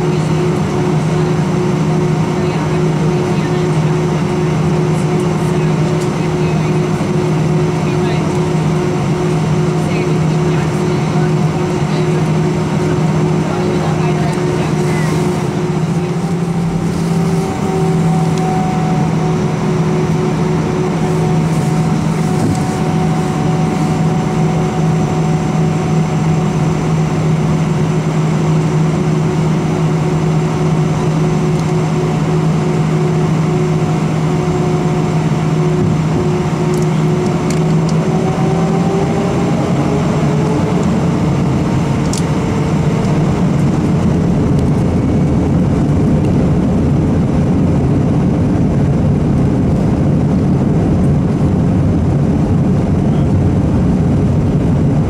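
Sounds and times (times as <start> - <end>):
constant rushing noise: 0.0 - 55.0
jet engines humming and whining: 0.0 - 55.0.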